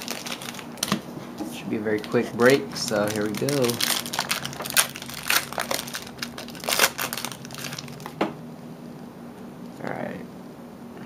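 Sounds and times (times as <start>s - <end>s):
foil wrapper crinkling and tearing: 0.0s - 1.0s, 1.9s - 8.2s.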